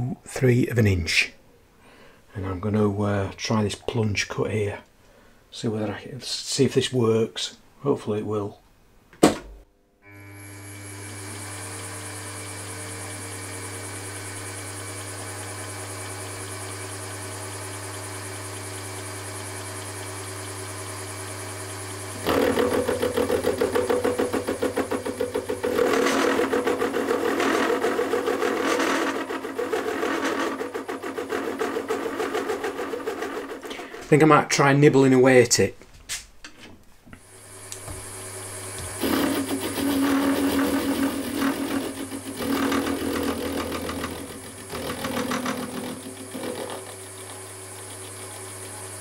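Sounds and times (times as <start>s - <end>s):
milling spindle humming: 10.0s - 34.3s, 37.2s - 49.0s
cutter milling metal with rattle: 21.9s - 33.9s, 38.9s - 49.0s.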